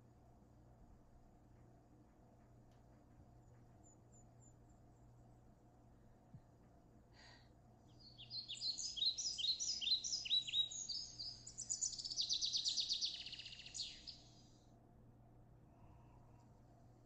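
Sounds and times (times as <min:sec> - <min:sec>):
songbird singing: 0:03.3 - 0:05.7, 0:07.8 - 0:14.6.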